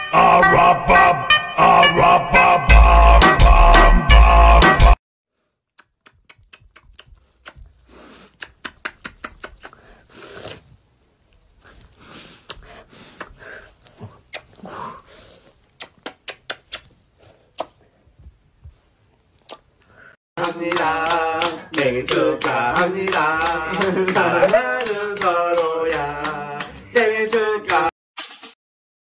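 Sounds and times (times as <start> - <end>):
wet kissing smacks: 5.7 - 10.8, 12.5 - 13.4, 14.0 - 14.7, 15.4 - 17.9, 19.4 - 19.8.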